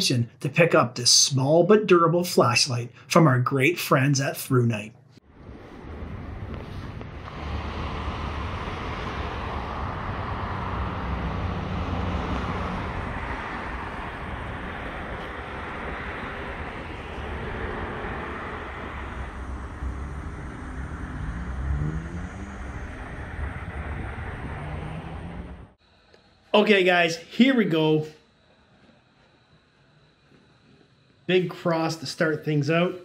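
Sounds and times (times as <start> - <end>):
road traffic rumble and hiss: 5.2 - 26.5
vehicle engine tone sliding in pitch: 5.3 - 25.8.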